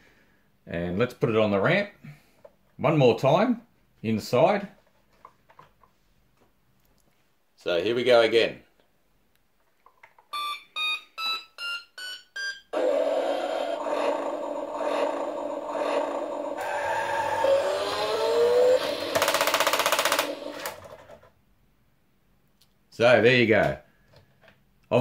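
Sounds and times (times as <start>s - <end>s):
toy electronic engine sound: 12.7s - 21.0s
rising whine: 12.8s - 20.8s
toy motor running: 12.8s - 21.0s
fast clicking buzz: 13.8s - 20.9s.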